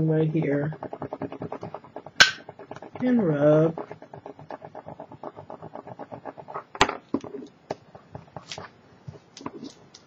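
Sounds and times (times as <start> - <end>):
tool scratching over foil: 0.0 - 6.8.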